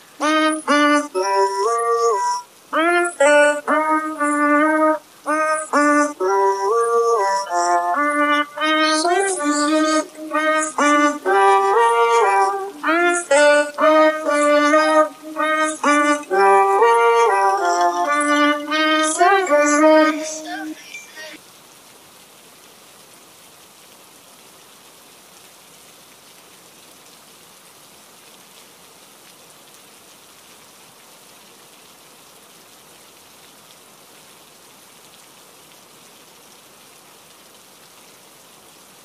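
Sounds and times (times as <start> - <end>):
steady hiss: 0.0 - 39.0.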